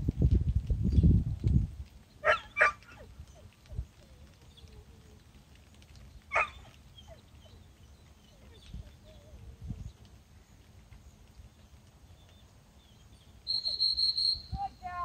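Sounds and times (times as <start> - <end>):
dog barking: 2.2 - 3.0, 6.3 - 6.7.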